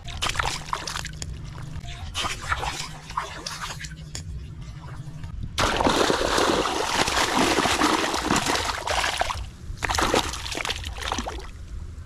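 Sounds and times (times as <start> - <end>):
muddy water splashing: 0.0 - 1.2, 5.6 - 11.5.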